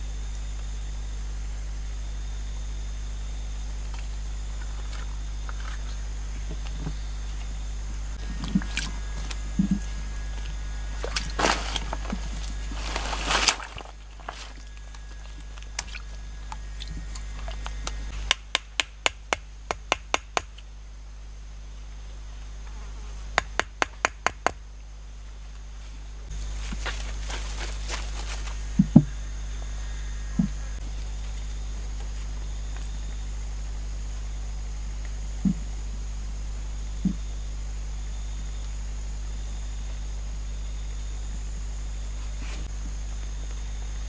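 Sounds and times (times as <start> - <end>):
water splashing: 10.9 - 17.7.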